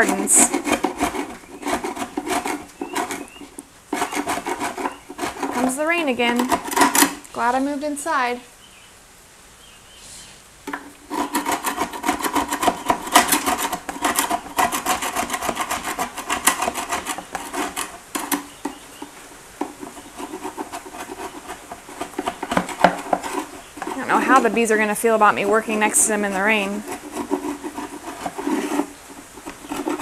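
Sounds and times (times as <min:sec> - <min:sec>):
metal scraper rasping on wood: 0:00.0 - 0:07.2, 0:11.0 - 0:30.0.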